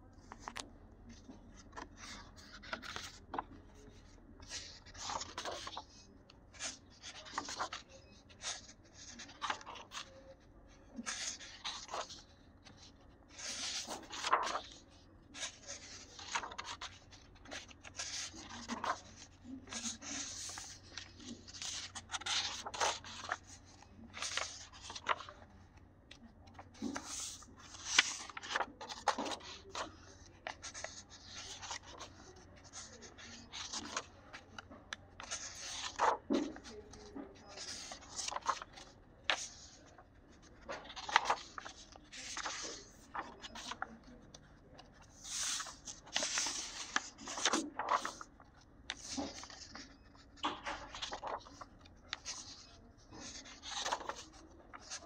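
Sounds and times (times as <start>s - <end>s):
paper pages rustling: 0.2s - 55.0s
page flaps: 4.4s - 5.9s, 6.6s - 7.8s, 13.4s - 14.8s, 15.4s - 23.6s, 24.2s - 25.4s, 26.5s - 32.9s, 33.5s - 34.1s, 35.2s - 43.9s, 45.0s - 48.3s, 50.4s - 52.6s, 53.2s - 55.0s.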